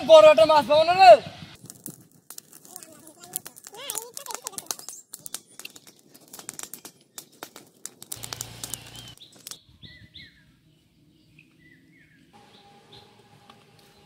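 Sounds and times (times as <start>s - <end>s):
fire crackling and popping: 1.4s - 9.6s
small birds chirping: 2.7s - 14.0s.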